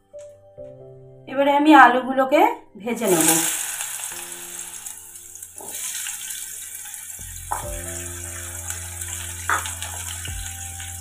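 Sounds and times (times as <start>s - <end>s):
soft background music: 0.0s - 11.0s
potatoes sizzling in hot oil: 2.9s - 11.0s.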